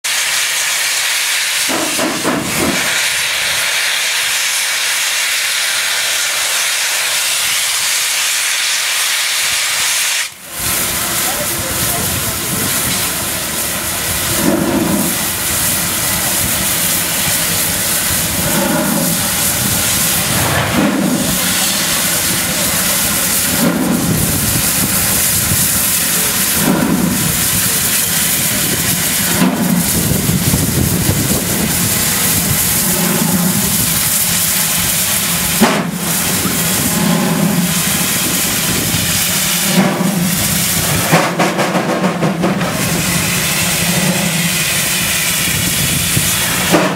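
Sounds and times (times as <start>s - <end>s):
steam locomotive exhaust beats: 0.0s - 46.9s
hiss of escaping steam: 0.1s - 46.9s
sharp knock: 1.7s - 2.9s.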